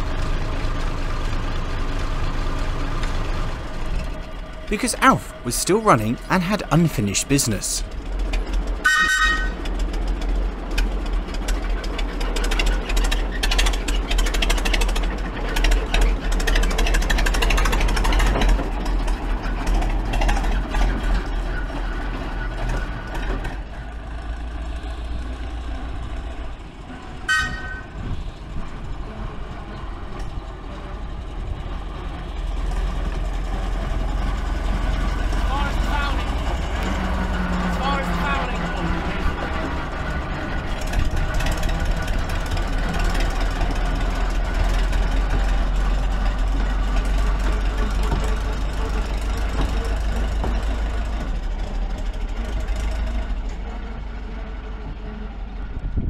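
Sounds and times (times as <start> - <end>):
locomotive mechanical clatter: 0.0 - 4.7, 7.8 - 56.0
locomotive horn blast: 8.8 - 9.7, 27.3 - 28.0.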